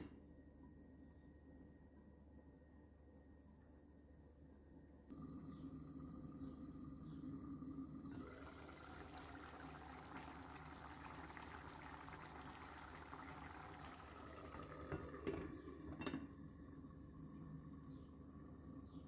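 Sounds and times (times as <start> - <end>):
food bubbling in a pan: 8.1 - 16.0.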